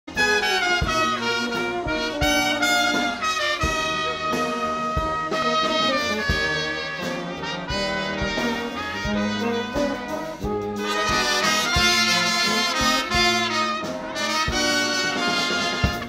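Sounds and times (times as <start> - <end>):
trumpets and trombone melody: 0.1 - 16.0
tubas playing bass line: 0.1 - 16.0
low beat thumps: 7.7 - 16.0.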